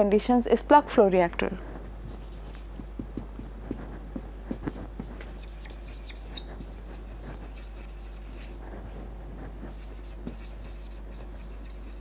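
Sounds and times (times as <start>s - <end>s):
marker pen writing on whiteboard: 2.0s - 12.0s.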